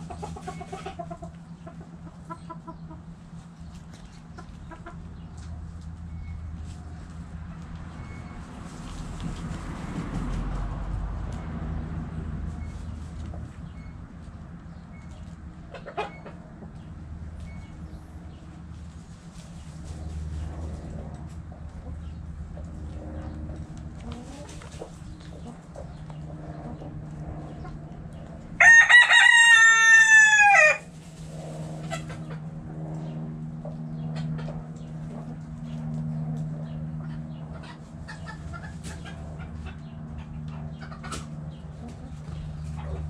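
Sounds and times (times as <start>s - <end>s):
hens clucking: 0.0s - 6.0s, 12.6s - 35.9s, 36.7s - 43.0s
rooster crowing: 28.6s - 30.9s.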